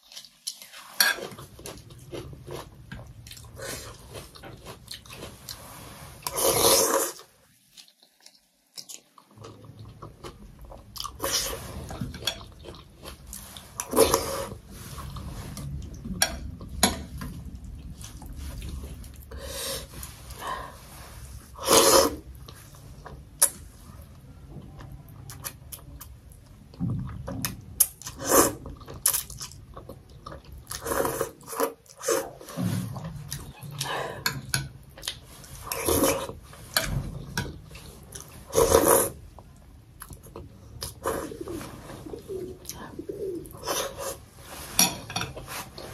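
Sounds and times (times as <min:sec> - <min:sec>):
person slurping noodles: 0:05.5 - 0:07.2, 0:19.3 - 0:22.4, 0:38.4 - 0:39.2.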